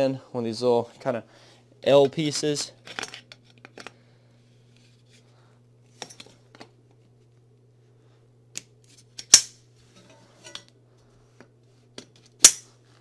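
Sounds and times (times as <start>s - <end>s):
loud sharp snap: 12.4s - 12.7s.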